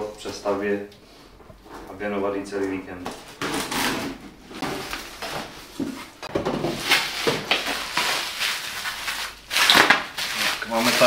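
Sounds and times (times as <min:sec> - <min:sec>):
cardboard and packing rustling: 0:03.0 - 0:11.0
plastic wrap crackling: 0:03.3 - 0:11.0.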